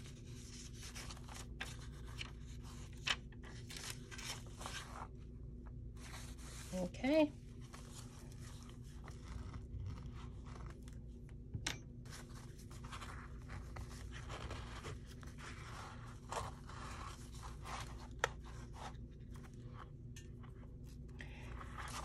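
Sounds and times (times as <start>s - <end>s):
paper rustling and scraping: 0.0s - 5.2s, 5.9s - 6.9s, 7.6s - 11.0s, 12.0s - 19.8s.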